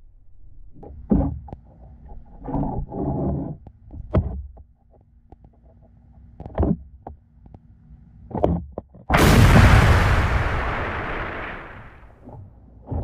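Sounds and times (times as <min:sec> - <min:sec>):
loud splash and rush of water: 0:09.1 - 0:12.0.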